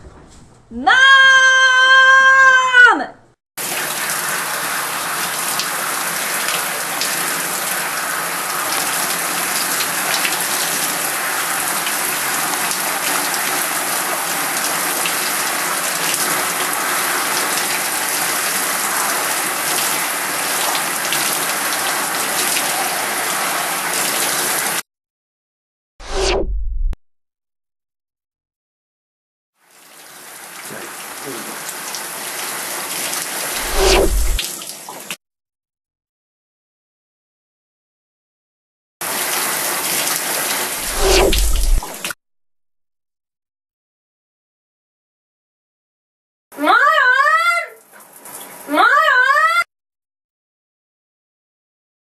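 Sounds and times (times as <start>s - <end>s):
shower water spraying: 3.6s - 24.8s, 29.6s - 35.1s, 39.0s - 42.2s, 47.9s - 48.7s.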